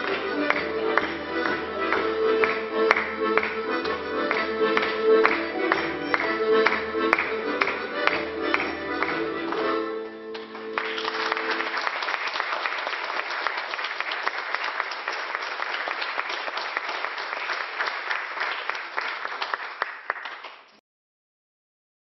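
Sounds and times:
audience applause: 0.0 - 9.6, 10.3 - 20.7
jig music: 0.0 - 11.7.

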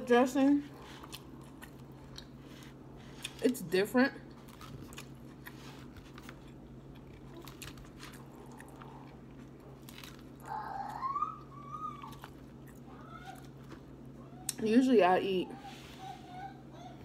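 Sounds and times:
faint steady hum: 0.0 - 17.0
person chewing crisp lettuce: 0.6 - 3.5, 4.2 - 14.1.

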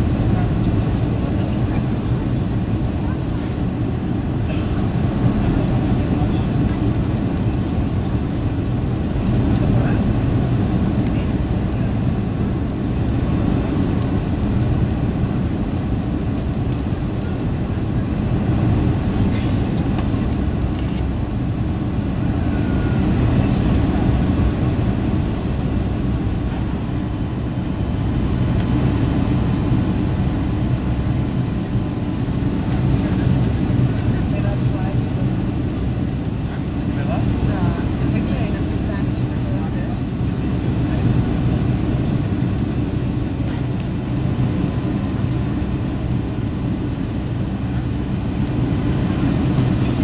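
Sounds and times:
airplane cabin engine and airflow rush: 0.0 - 50.0.

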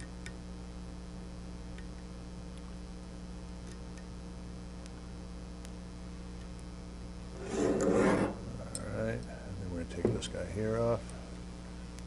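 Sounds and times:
steady low hum: 0.0 - 12.0
loud metal rubbing scrape: 7.4 - 8.4.

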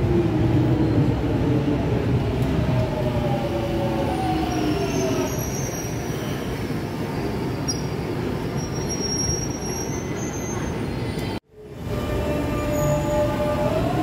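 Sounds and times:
high-pitched brake squeal: 4.4 - 6.5, 7.5 - 11.2, 11.9 - 13.6.

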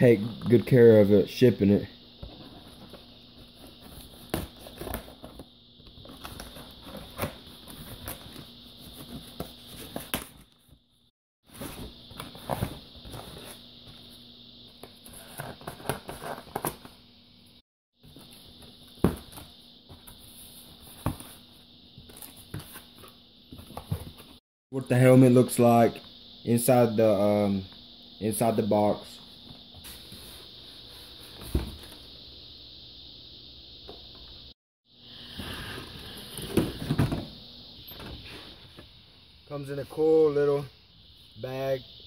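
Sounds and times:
faint steady hum: 0.0 - 42.0
cardboard rustling and scraping: 2.2 - 10.8, 11.5 - 14.2, 14.8 - 16.9.

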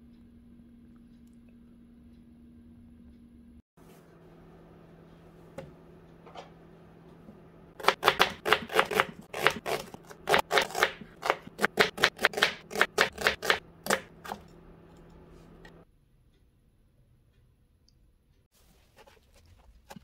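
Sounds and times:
knife slicing onion on plastic board: 7.8 - 14.5.

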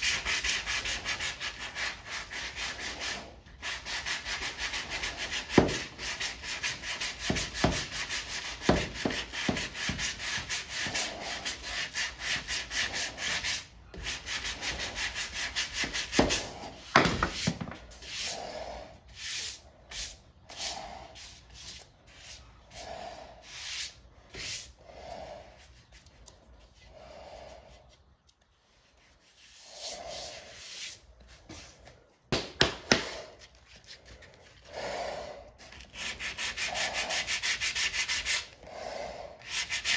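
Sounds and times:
sanding block rasping strokes: 0.0 - 18.5, 19.1 - 24.8, 28.9 - 31.1, 35.7 - 38.6, 39.4 - 39.9.

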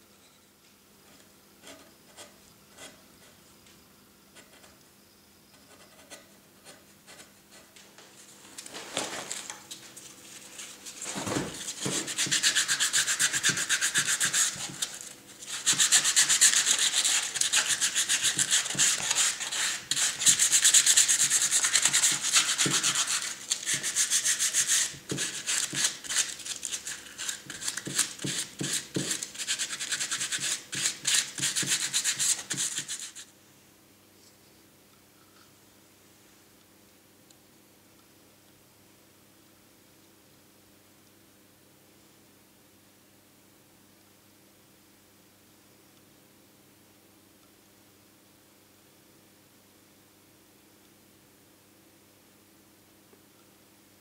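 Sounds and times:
sandpaper scratching on wood: 11.6 - 33.2.

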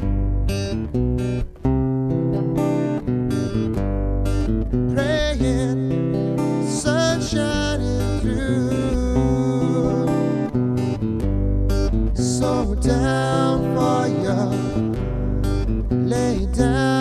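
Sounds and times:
acoustic bass: 0.0 - 17.0
acoustic guitar: 0.0 - 17.0
man singing: 4.9 - 10.6, 12.1 - 17.0.

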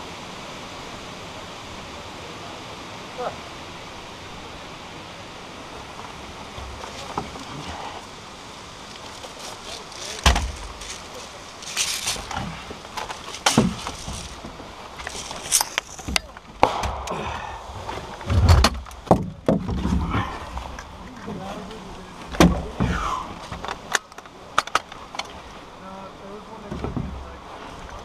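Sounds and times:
steady hiss: 0.0 - 28.0.

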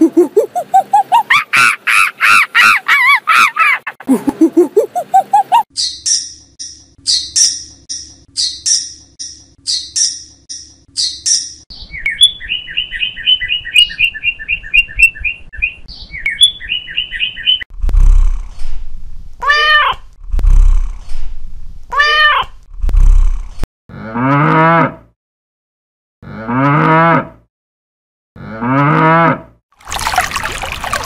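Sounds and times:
meerkat chirping: 4.8 - 5.6
cat meowing: 19.4 - 20.0
cow mooing: 23.9 - 25.0, 26.2 - 27.4, 28.4 - 29.5.

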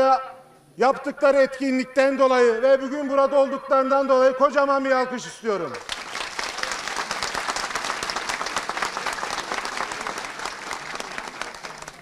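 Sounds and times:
crowd applauding: 5.8 - 12.0.

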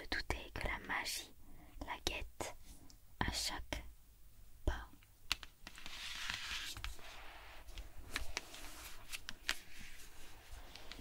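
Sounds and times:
book being turned over: 5.6 - 11.0.

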